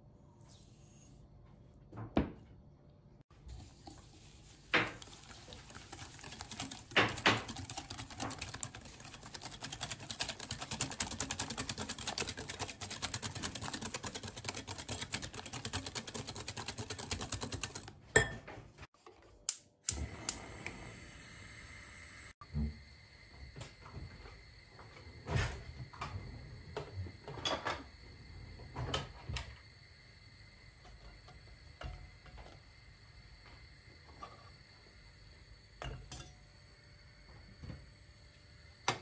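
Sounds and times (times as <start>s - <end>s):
whisk clicking against glass bowl: 4.9s - 17.9s.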